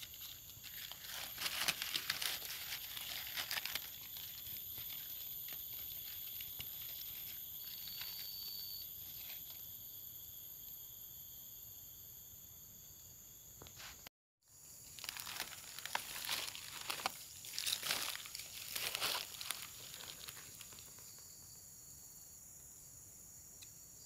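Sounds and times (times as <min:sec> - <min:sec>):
rustling and crinkling: 0:00.0 - 0:09.6, 0:14.9 - 0:21.2
brief tone: 0:07.7 - 0:09.0.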